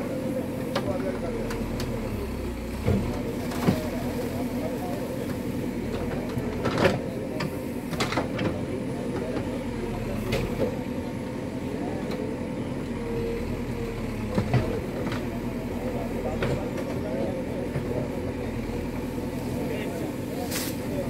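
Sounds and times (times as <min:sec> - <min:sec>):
excavator diesel engine running: 0:00.0 - 0:21.0
excavator bucket knocks and clanks: 0:14.3 - 0:15.2.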